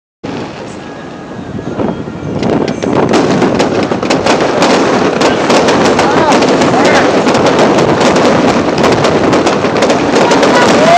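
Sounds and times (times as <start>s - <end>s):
fireworks hissing: 0.2s - 10.9s
fireworks crackling pops: 2.3s - 10.9s.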